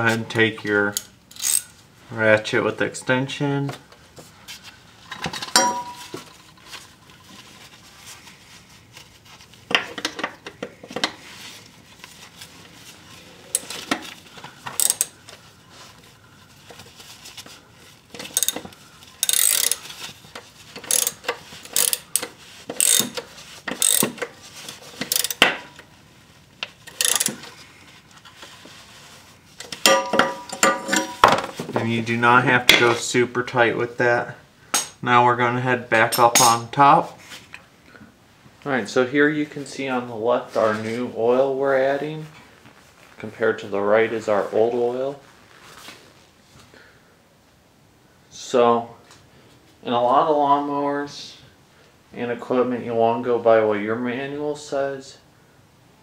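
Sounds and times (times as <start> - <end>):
ratchet clicking: 1.3 - 1.7, 14.7 - 15.1, 18.2 - 18.6, 19.2 - 19.9, 20.8 - 24.3, 25.0 - 25.4, 26.9 - 27.4.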